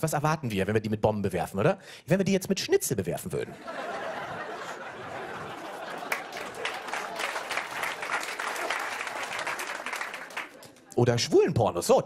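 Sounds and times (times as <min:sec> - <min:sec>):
audience applauding: 0:04.7 - 0:11.1.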